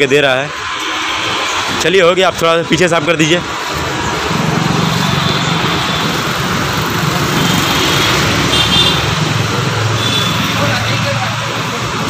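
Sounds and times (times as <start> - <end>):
road traffic noise: 0.0 - 12.0
vehicle engine running: 3.5 - 12.0.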